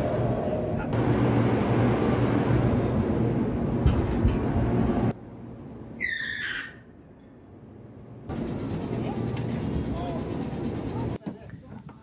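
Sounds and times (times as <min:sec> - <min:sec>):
amusement ride rumbling: 0:07.9 - 0:12.0.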